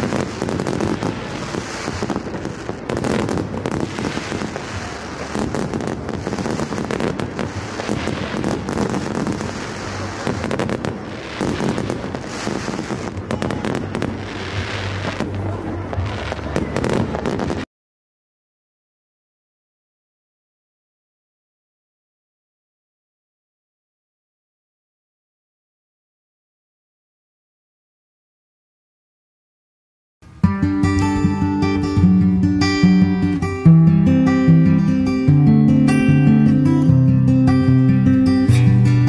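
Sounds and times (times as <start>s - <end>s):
fireworks bangs: 0.0s - 17.7s
fireworks crackle: 0.0s - 17.7s, 30.8s - 39.0s.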